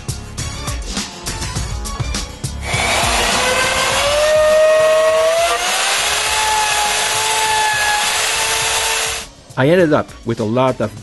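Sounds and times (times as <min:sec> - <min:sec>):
router whining cutting hardwood: 0:02.6 - 0:09.3.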